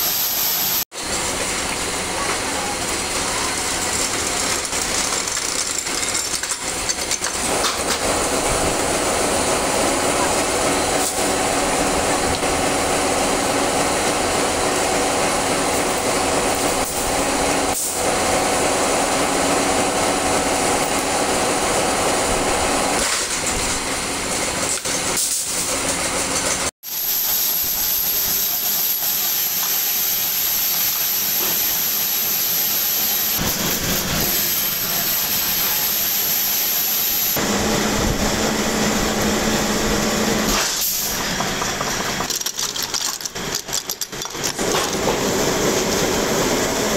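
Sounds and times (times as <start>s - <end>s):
bolt-making machinery running: 0.0s - 46.9s
machine drone with high whistle: 32.2s - 41.6s.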